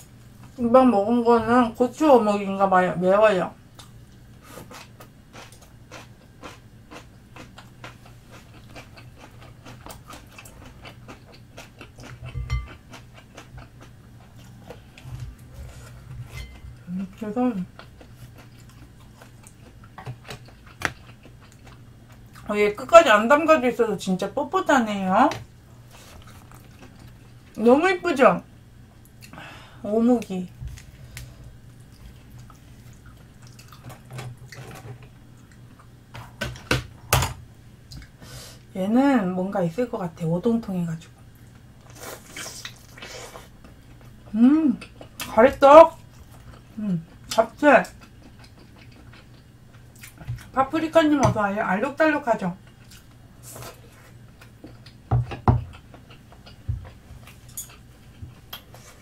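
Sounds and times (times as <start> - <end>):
low steady hum: 0.0 - 59.0
chewing with wet mouth clicks: 4.7 - 14.5, 17.7 - 22.5, 30.8 - 34.0, 46.1 - 50.5, 54.4 - 55.0, 55.7 - 58.8.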